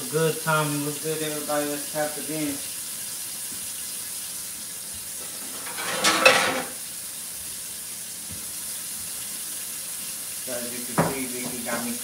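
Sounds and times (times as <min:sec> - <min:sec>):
steady hiss: 0:00.0 - 0:12.0
dishes clattering: 0:05.2 - 0:06.8.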